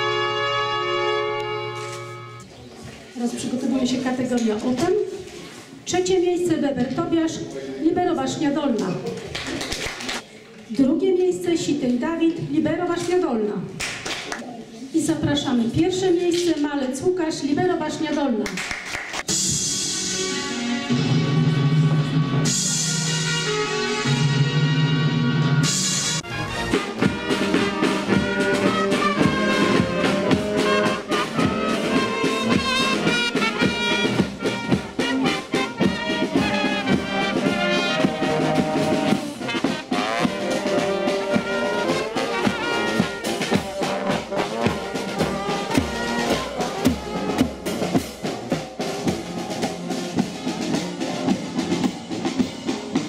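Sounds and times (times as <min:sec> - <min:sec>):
marching brass band: 0:00.0 - 0:02.4, 0:19.2 - 0:53.0
steady drum beat: 0:25.6 - 0:53.0.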